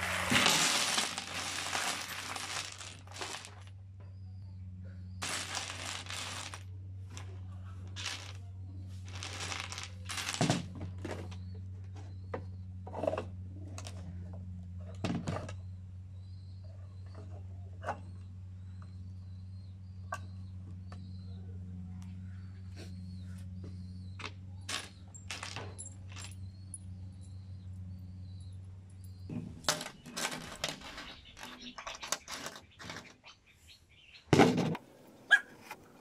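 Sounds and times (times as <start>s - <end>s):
screws rattling when raked: 0.0s - 3.6s, 5.2s - 6.6s, 9.0s - 10.5s
metal screws clattering: 0.0s - 3.7s, 5.2s - 6.6s, 8.0s - 8.4s, 9.0s - 10.6s, 24.7s - 27.4s, 29.0s - 33.1s.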